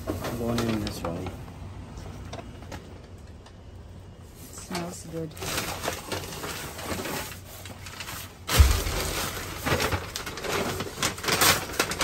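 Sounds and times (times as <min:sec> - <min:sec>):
bags rustling and crinkling: 0:04.2 - 0:12.0
loud thump: 0:08.5 - 0:10.2.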